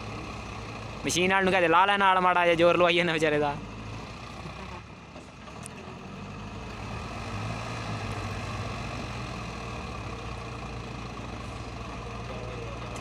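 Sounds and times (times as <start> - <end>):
diesel engines straining: 0.0 - 13.0.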